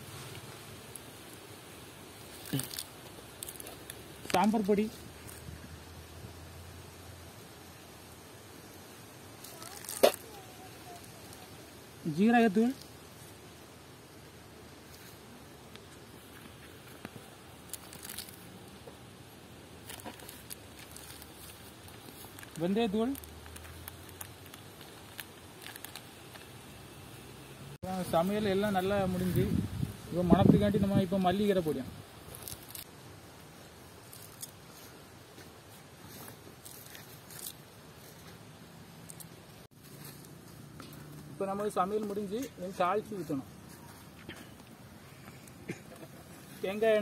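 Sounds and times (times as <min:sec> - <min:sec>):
low steady hiss: 0:00.0 - 0:47.0
rustling leaves being handled: 0:00.0 - 0:47.0
small clicks and rustles: 0:19.8 - 0:26.6, 0:32.3 - 0:32.9.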